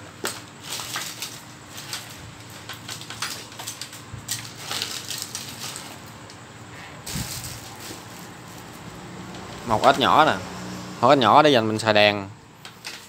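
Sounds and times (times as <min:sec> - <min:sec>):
plastic bags crinkling: 0:00.2 - 0:06.3, 0:07.0 - 0:08.8.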